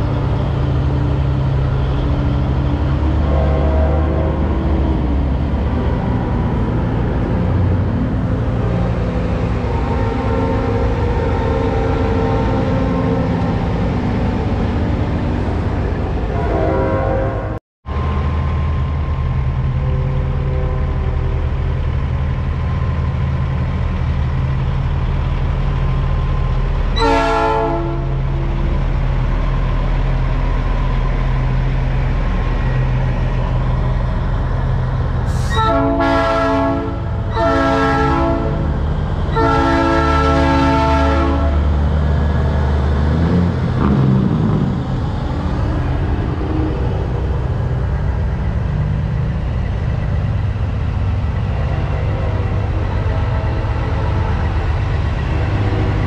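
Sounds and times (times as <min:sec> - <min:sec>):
diesel truck engines running: 0:00.0 - 0:16.3, 0:17.9 - 0:56.0
truck air horn blasts: 0:03.2 - 0:04.4, 0:16.3 - 0:17.6, 0:27.0 - 0:28.2, 0:35.3 - 0:38.7, 0:39.3 - 0:41.7.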